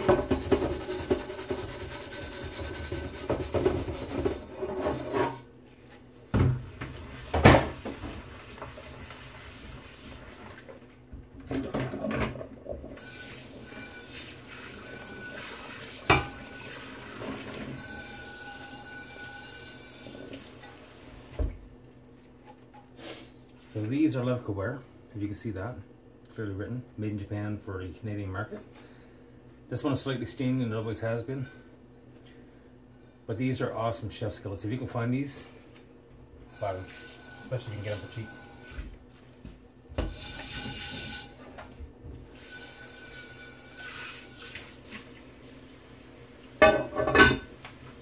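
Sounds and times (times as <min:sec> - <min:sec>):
brush scrubbing skillet: 0:00.0 - 0:05.4, 0:06.7 - 0:10.8, 0:42.4 - 0:45.0
running tap water: 0:12.8 - 0:21.6, 0:36.5 - 0:38.8, 0:40.0 - 0:41.4, 0:42.2 - 0:48.0
iron clanking against sink: 0:46.6 - 0:47.5.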